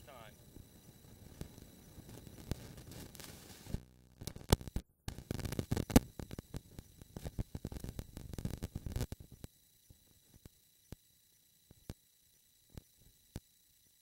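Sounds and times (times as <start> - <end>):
crackling thumping microphone noise: 0.0 - 10.6.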